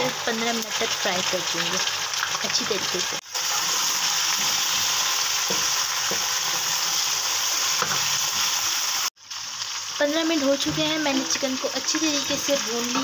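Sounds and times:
chicken sizzling in hot oil: 0.0 - 13.0.

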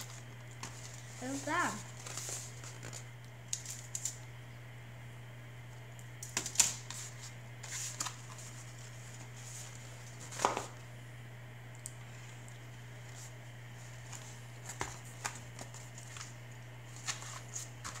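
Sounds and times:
steady low hum: 0.0 - 18.0
food packaging crinkling and tapping: 1.9 - 4.2, 14.1 - 18.0.

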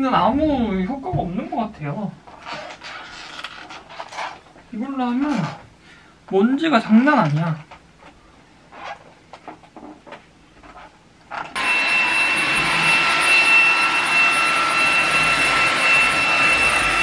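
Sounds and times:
stick vacuum cleaner whining: 11.4 - 17.0.

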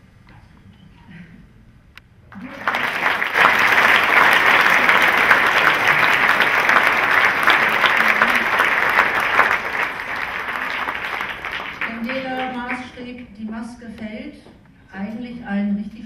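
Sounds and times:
audience applauding: 2.3 - 13.0.

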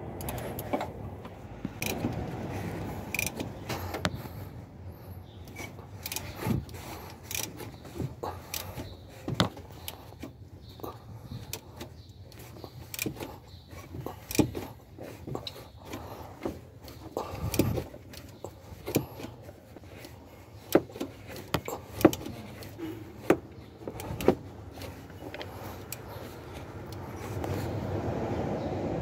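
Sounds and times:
tools clinking and knocking: 12.4 - 26.6.

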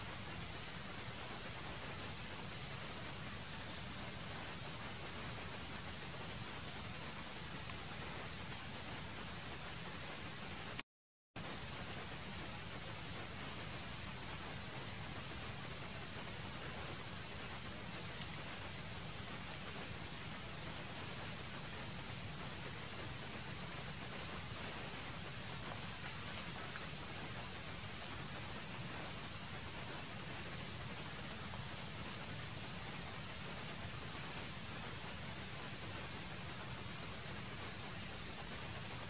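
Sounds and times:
background hiss: 0.0 - 10.8, 11.4 - 39.0
insects droning: 0.0 - 10.8, 11.4 - 39.0
faint ticks: 3.4 - 4.1, 17.6 - 22.1.

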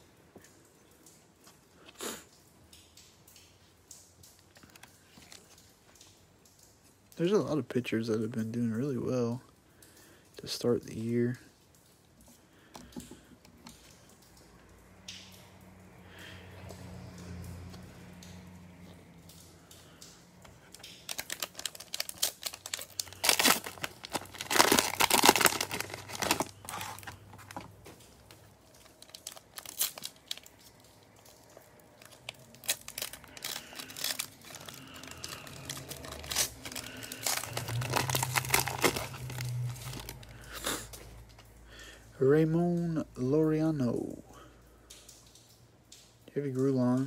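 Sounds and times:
plastic wrappers crinkling and tearing: 3.9 - 8.0, 16.2 - 41.6.

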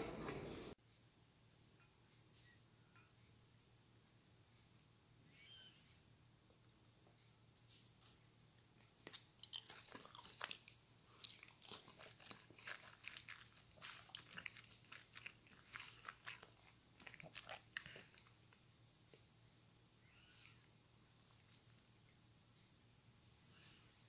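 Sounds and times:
person chewing egg wetly: 8.8 - 19.3.

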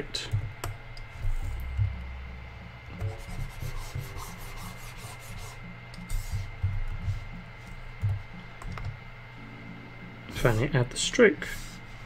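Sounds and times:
mouse sliding across desk: 11.4 - 12.0.

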